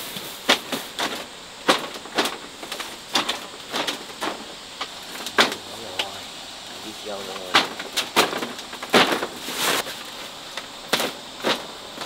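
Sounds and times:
sharp irregular knocks: 0:00.5 - 0:06.2, 0:07.3 - 0:09.4.

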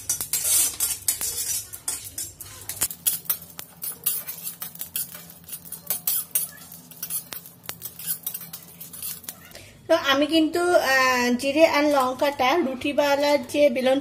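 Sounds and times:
metal spatula scraping a pan: 0:00.0 - 0:09.6.

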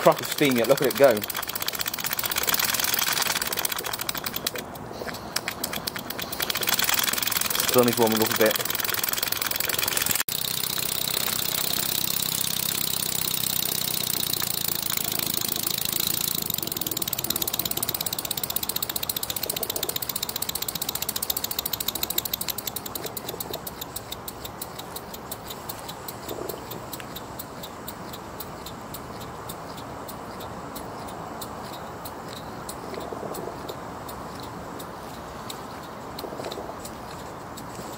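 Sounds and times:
steam engine beating: 0:00.0 - 0:26.3.

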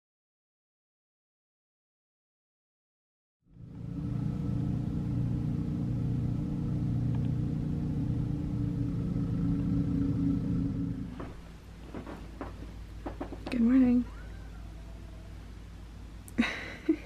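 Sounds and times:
snowblower engine running: 0:03.6 - 0:12.5.

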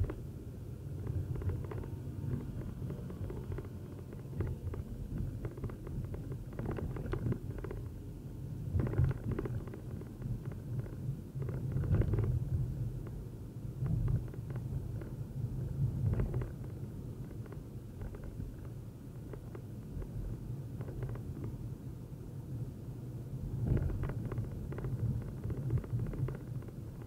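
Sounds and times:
road noise: 0:00.0 - 0:27.0
small knocks: 0:23.7 - 0:27.0.

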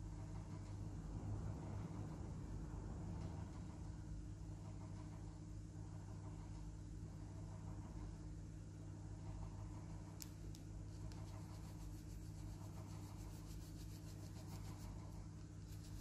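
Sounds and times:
low electrical hum: 0:00.0 - 0:16.0
colored pencil scratching on paper: 0:10.9 - 0:16.0.

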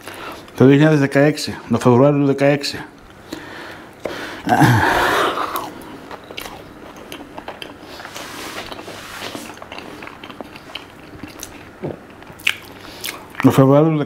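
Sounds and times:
breathy burst: 0:03.3 - 0:05.7
person chewing fried food: 0:04.8 - 0:13.5.

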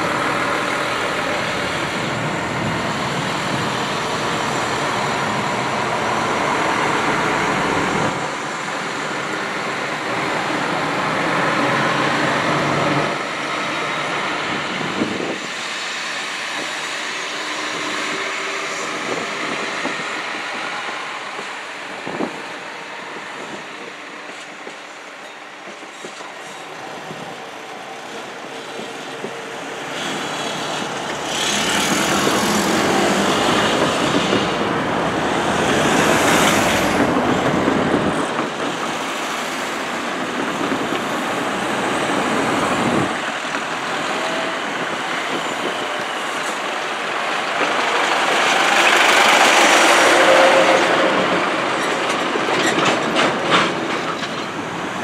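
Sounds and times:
railbus engine and wheels: 0:00.0 - 0:55.0
road vehicle passing: 0:30.0 - 0:38.2.

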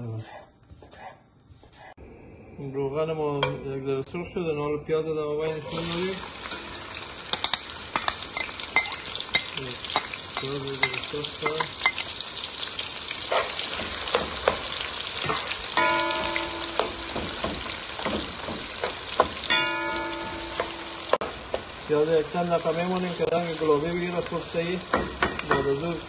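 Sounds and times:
onions sizzling in hot oil: 0:05.5 - 0:26.0.

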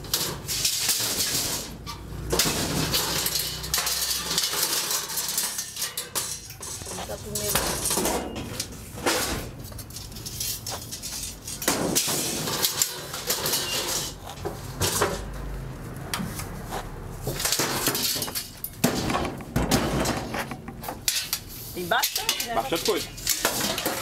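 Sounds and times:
scrap metal clanking and rattling: 0:00.0 - 0:24.0
sharp metal knocks: 0:17.3 - 0:23.8.

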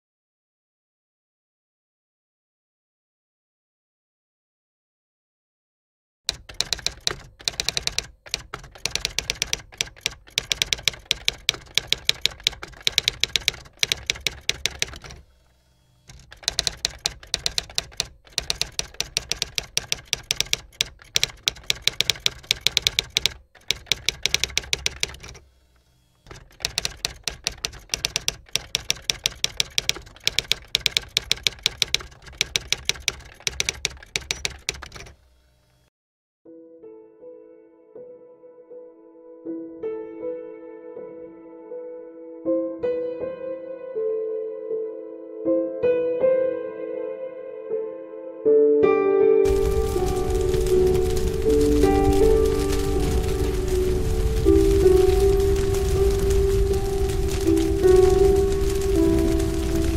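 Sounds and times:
typewriter keys clacking: 0:06.3 - 0:15.2, 0:16.1 - 0:25.5, 0:26.3 - 0:35.2, 0:49.4 - 0:59.9.

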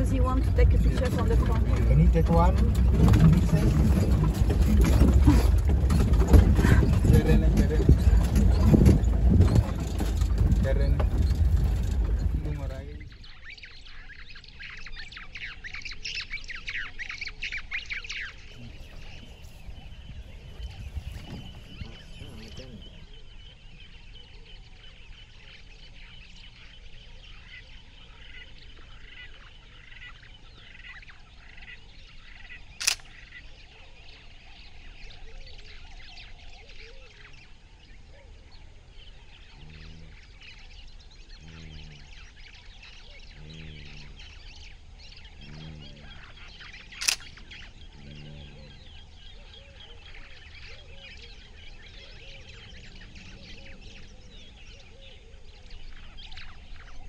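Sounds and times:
low honking calls: 0:17.6 - 0:24.1, 0:38.7 - 0:57.0
sharp clicks: 0:32.8 - 0:33.2, 0:46.9 - 0:47.5.

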